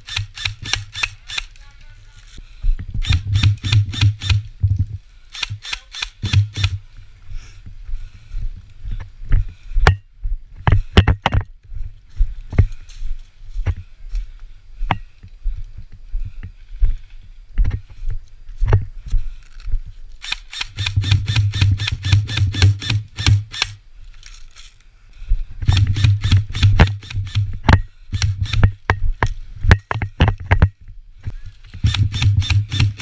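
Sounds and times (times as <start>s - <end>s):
airsoft rifle rapid shots: 0.0s - 1.5s, 3.0s - 4.4s, 5.4s - 6.8s, 20.2s - 23.8s, 25.7s - 27.5s, 31.8s - 33.0s.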